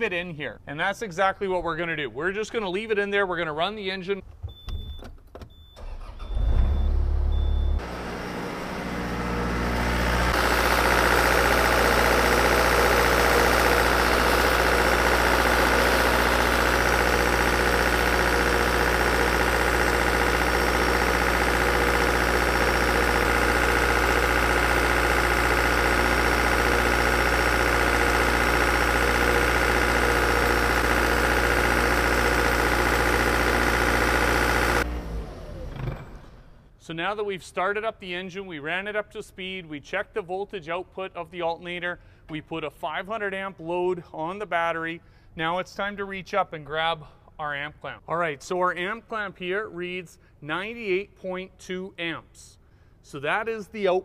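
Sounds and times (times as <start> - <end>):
diesel engine running: 5.8 - 36.2
starter motor cranking: 5.8 - 36.2.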